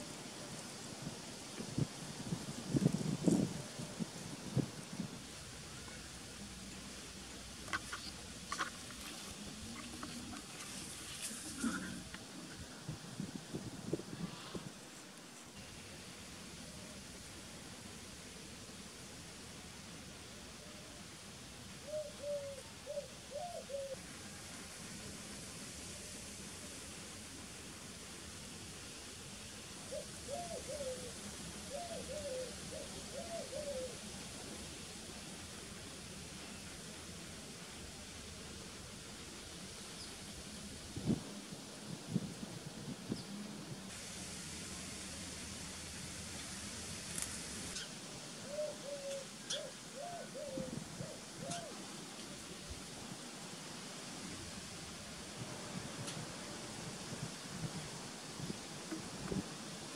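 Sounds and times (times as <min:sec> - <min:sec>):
steady hiss: 0:00.0 - 0:59.9
bird calling: 0:21.8 - 0:24.0, 0:47.7 - 0:51.8
faint ticks: 0:56.0 - 0:56.3.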